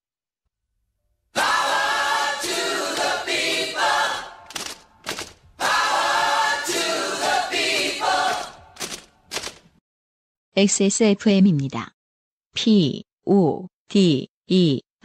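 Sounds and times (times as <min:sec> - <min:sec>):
a cappella group singing: 0:01.4 - 0:04.5, 0:05.6 - 0:08.8.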